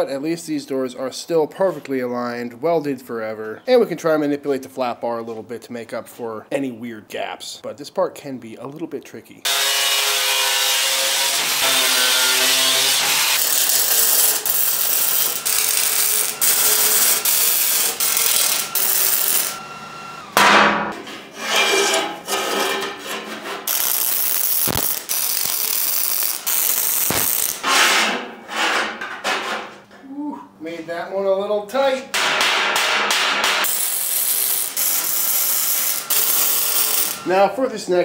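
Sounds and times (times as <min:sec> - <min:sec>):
angle grinder cutting steel: 0:09.5 - 0:20.5, 0:23.6 - 0:27.7, 0:33.6 - 0:37.4
sharp metal knocks: 0:20.4 - 0:21.0, 0:32.1 - 0:33.7.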